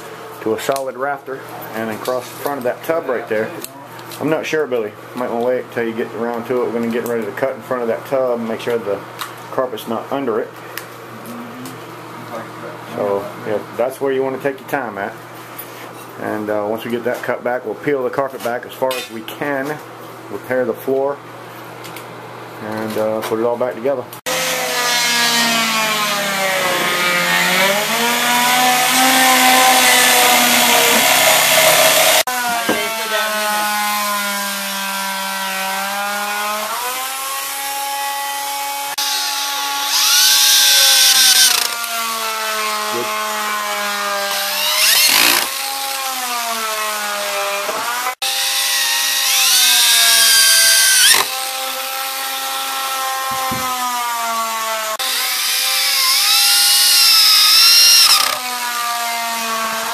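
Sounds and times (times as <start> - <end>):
wood cutting noise: 24.2 - 59.9
power tool motor whine: 24.3 - 59.9.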